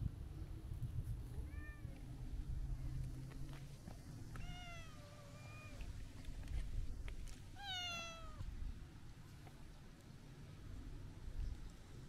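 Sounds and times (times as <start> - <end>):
cat meowing: 4.4 - 5.8, 7.6 - 8.4.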